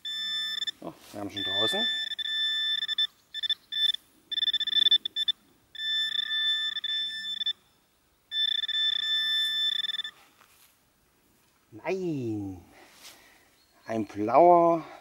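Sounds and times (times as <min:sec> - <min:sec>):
pinpointer high electronic tone: 0:00.0 - 0:10.2.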